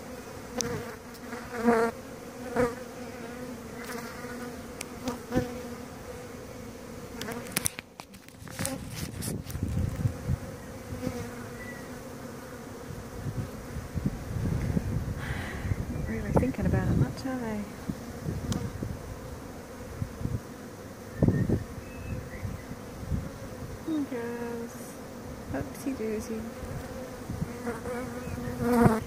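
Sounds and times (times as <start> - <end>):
honeybees buzzing: 0.0 - 29.0.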